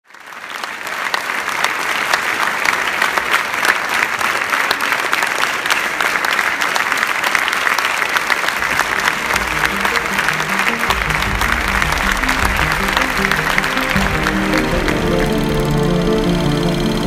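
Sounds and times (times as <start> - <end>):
large audience applauding: 0.0 - 17.0.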